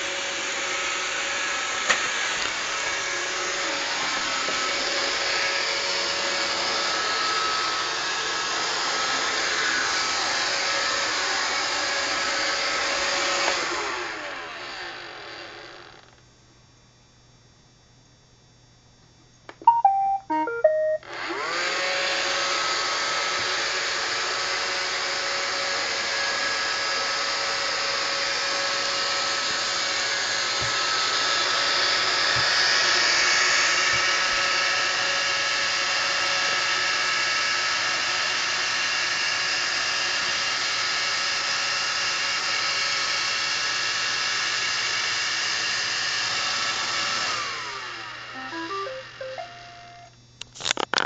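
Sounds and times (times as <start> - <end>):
robot vacuum motor whine: 0.0 - 16.2, 21.0 - 50.1
melody of stepped beeps: 19.6 - 21.0, 48.4 - 50.0.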